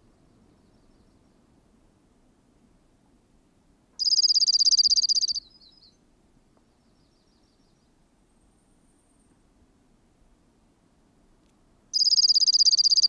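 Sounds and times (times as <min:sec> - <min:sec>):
bird singing a trill: 0:04.0 - 0:06.0, 0:06.8 - 0:07.9, 0:12.0 - 0:13.0.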